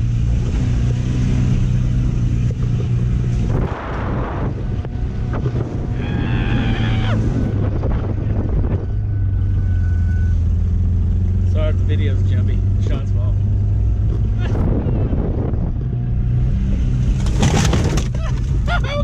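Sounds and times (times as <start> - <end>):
loud car engine running: 0.0 - 19.0
wind buffeting microphone: 2.5 - 9.6, 13.9 - 19.0.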